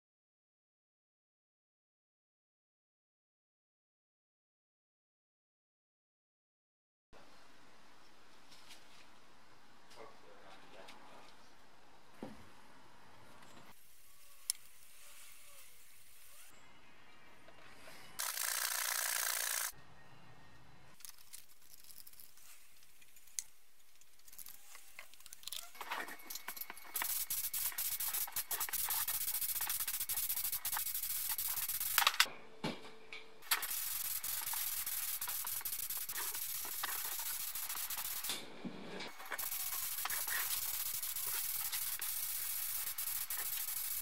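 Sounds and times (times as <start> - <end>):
spray gun hissing: 26.5 - 32.0, 33.4 - 38.4, 39.1 - 44.0.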